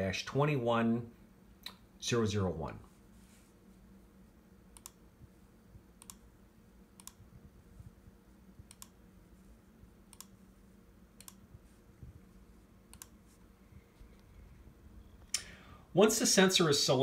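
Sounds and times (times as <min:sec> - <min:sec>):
faint room hum: 0:00.0 - 0:17.0
computer mouse clicks: 0:04.7 - 0:05.0, 0:06.0 - 0:06.2, 0:07.0 - 0:07.3, 0:08.6 - 0:09.0, 0:10.1 - 0:10.4, 0:11.2 - 0:11.4, 0:12.9 - 0:13.2.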